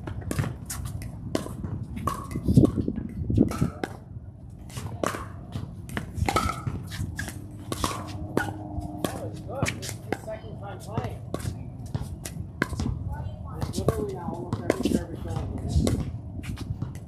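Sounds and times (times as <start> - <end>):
footsteps on hard court: 4.8 - 13.0.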